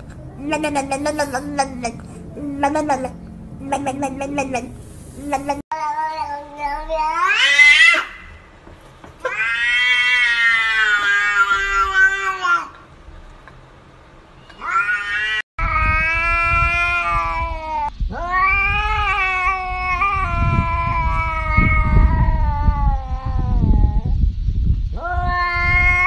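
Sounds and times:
low rumble: 0:00.0 - 0:05.6, 0:15.6 - 0:25.8
cat yowling: 0:05.3 - 0:08.4, 0:09.2 - 0:12.7, 0:14.6 - 0:24.2, 0:25.0 - 0:26.0.

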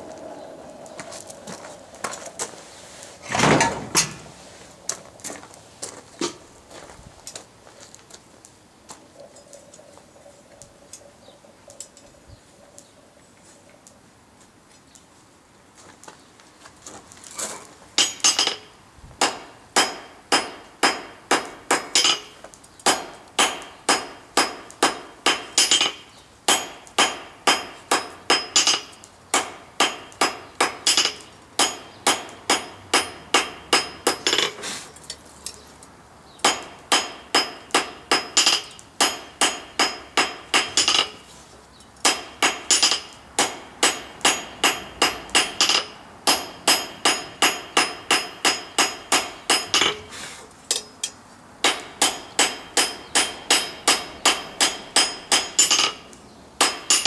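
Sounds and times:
hammer striking steel on anvil: 0:18.0 - 0:34.6, 0:36.4 - 0:41.2, 0:42.0 - 0:50.1, 0:50.7 - 0:57.0.

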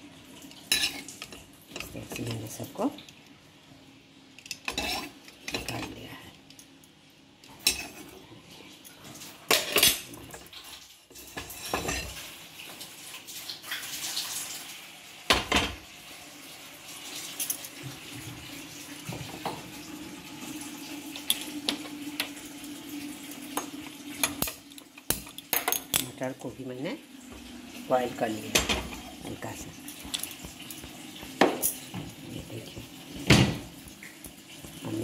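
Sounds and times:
pots and utensils clattering: 0:00.6 - 0:02.7, 0:04.4 - 0:06.0, 0:07.5 - 0:08.3, 0:08.9 - 0:12.4, 0:15.3 - 0:15.8, 0:21.2 - 0:22.4, 0:23.5 - 0:26.2, 0:28.2 - 0:35.0
running splashing water: 0:08.3 - 0:35.0.

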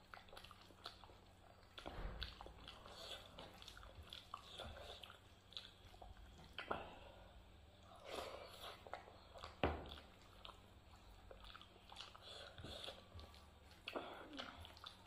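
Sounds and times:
chewing: 0:00.0 - 0:15.0.

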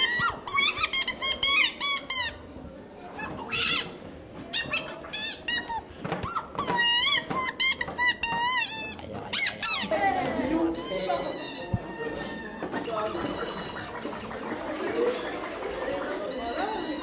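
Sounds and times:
squeaky creature calls: 0:10.8 - 0:14.0.

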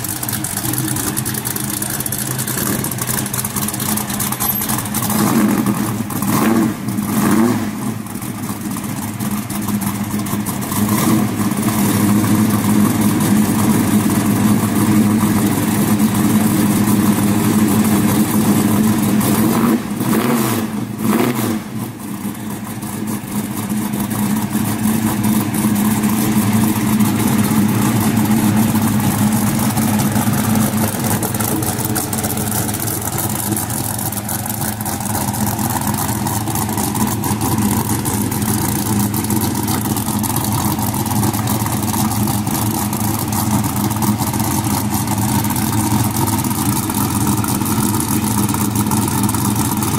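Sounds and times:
car engine idling: 0:00.0 - 0:49.9
engine revving: 0:05.0 - 0:08.0, 0:10.8 - 0:12.0, 0:19.2 - 0:21.9.

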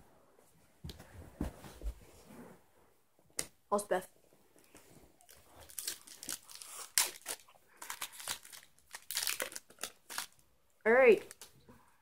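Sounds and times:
foil wrapper tearing and crinkling: 0:05.3 - 0:10.4.

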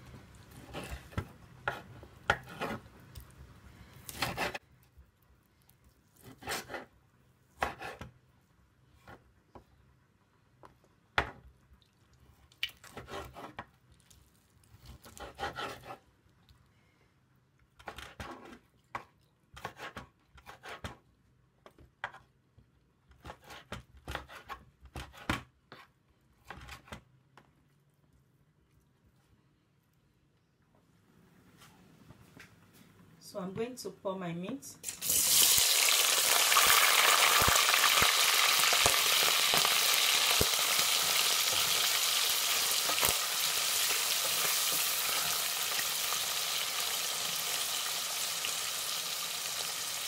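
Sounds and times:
knife slicing meat: 0:04.0 - 0:04.6, 0:06.2 - 0:06.9, 0:07.6 - 0:08.1, 0:14.8 - 0:16.0.

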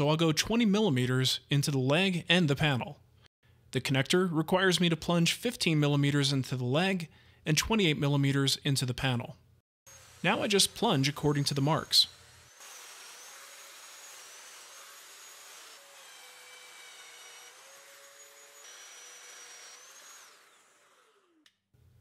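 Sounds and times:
dust extractor hiss: 0:09.9 - 0:15.5.

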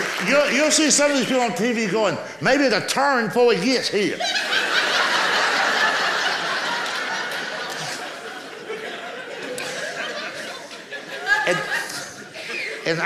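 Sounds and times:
audience laughing: 0:04.0 - 0:13.0.

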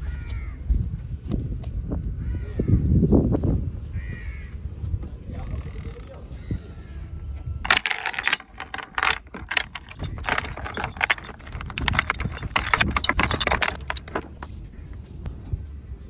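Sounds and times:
anchor chain rattling: 0:07.6 - 0:14.7.

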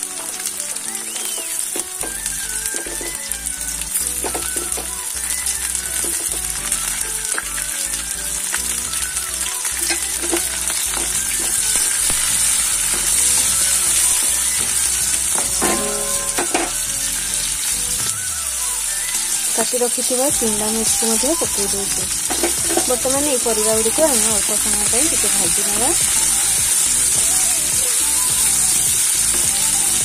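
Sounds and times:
vegetables sizzling in hot oil: 0:00.0 - 0:30.0
stirring clicks and scrapes: 0:09.6 - 0:12.3.

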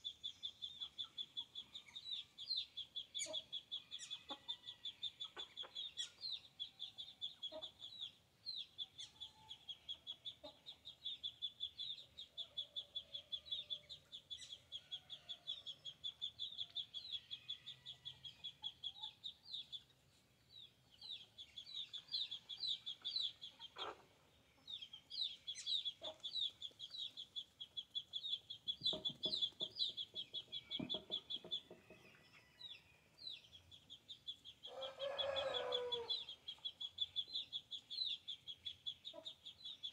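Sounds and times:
chickens clucking: 0:03.2 - 0:16.9, 0:20.8 - 0:39.9
rapid high-pitched chirping: 0:24.8 - 0:31.7.

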